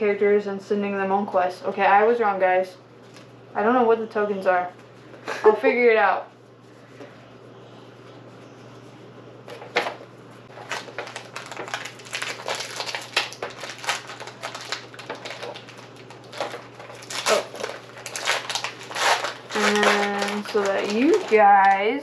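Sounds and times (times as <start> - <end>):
foil wrapper crinkling and tearing: 10.5 - 22.0.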